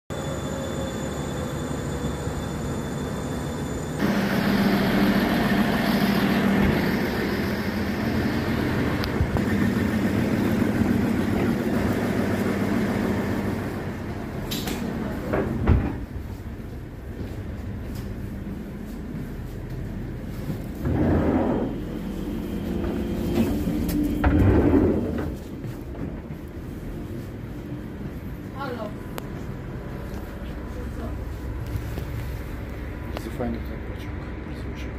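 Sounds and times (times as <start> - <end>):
train engine rumbling hum: 0.1 - 34.9.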